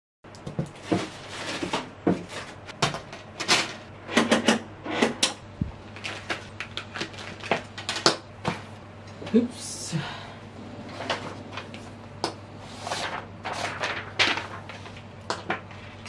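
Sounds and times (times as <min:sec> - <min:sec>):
low steady hum: 0:00.3 - 0:16.0
plastic bag rustling: 0:05.8 - 0:08.8, 0:10.8 - 0:16.0.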